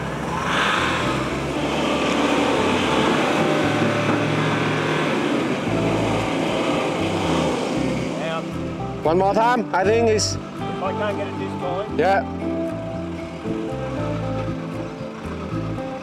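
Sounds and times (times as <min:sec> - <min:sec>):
truck engines revving under load: 0:00.0 - 0:16.0.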